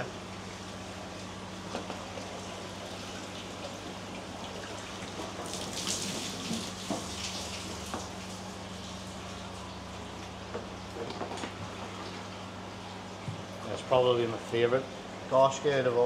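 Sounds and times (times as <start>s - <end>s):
low electrical hum: 0.0s - 16.0s
water trickling and splashing: 1.9s - 10.0s.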